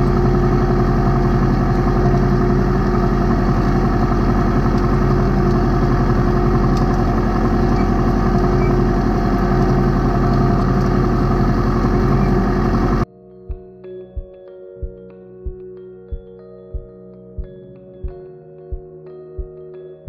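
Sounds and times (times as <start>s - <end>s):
diesel tractor running: 0.0s - 13.0s
planter rattling: 0.0s - 13.0s.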